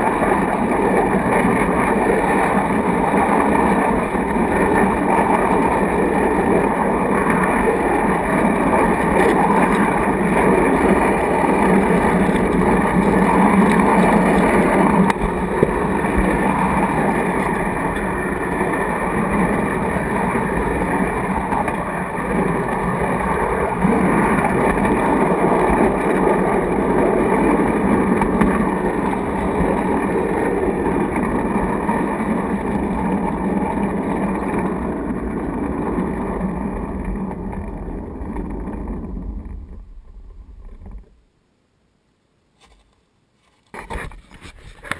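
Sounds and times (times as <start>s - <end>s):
model train car rolling on track: 0.0s - 41.2s.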